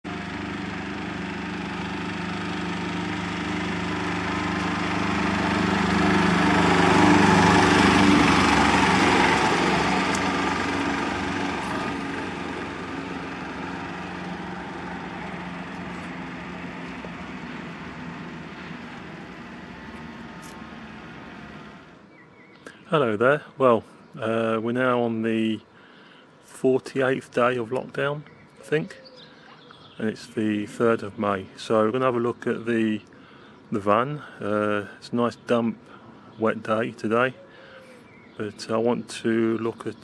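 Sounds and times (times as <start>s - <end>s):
small diesel van driving past: 0.0s - 22.4s.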